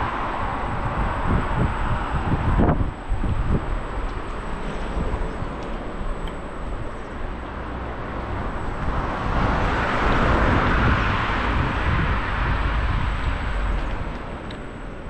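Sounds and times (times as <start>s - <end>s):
wind rumble on microphone: 0.0s - 15.0s
car passing close by: 7.3s - 14.4s.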